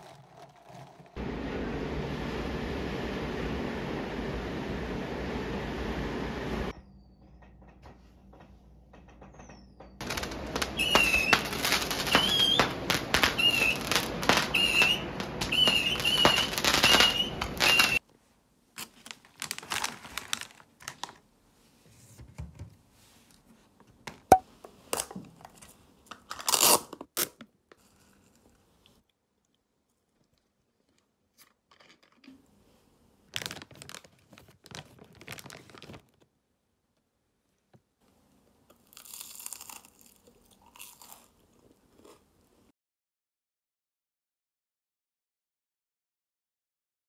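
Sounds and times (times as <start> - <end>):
fireworks whistling and popping: 9.4 - 18.0.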